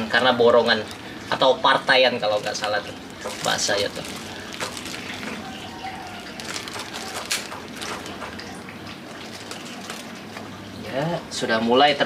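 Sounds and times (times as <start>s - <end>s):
plastic crinkling: 2.2s - 10.4s
water sloshing: 2.2s - 10.8s
knife sawing plastic bag: 2.4s - 8.2s.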